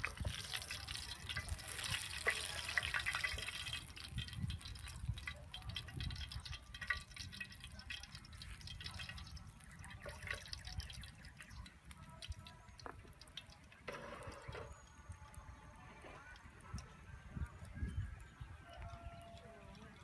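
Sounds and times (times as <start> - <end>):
oil crackling in frying pan: 0.0 - 13.8.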